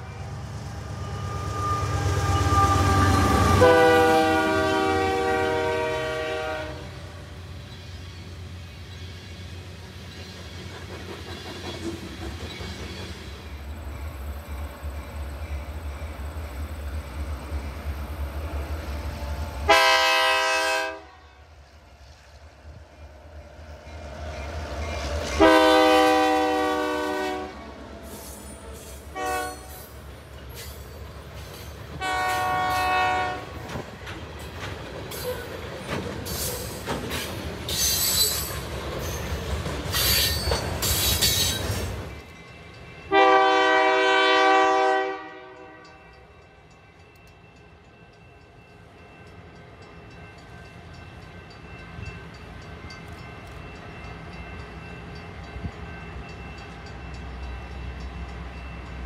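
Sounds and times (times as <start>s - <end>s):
train rumbling past: 0.0s - 59.0s
locomotive air horn: 1.0s - 7.2s, 19.0s - 21.4s, 25.4s - 27.6s, 29.1s - 29.8s, 32.0s - 33.6s, 43.1s - 46.0s
wheel squeal: 37.7s - 39.3s.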